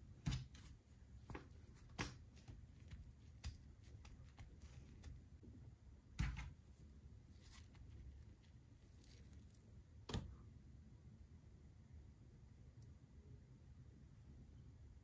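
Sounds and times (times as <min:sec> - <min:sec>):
paper crinkle: 0:07.2 - 0:09.6
paper rustling on skin: 0:07.2 - 0:09.6.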